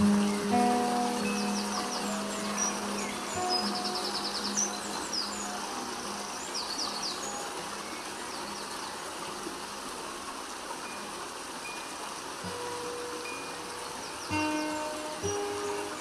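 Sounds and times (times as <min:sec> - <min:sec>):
faint low music tone: 0:00.0 - 0:08.6
birds chirping: 0:00.0 - 0:09.4, 0:12.4 - 0:16.0
waterfall rushing: 0:00.0 - 0:16.0.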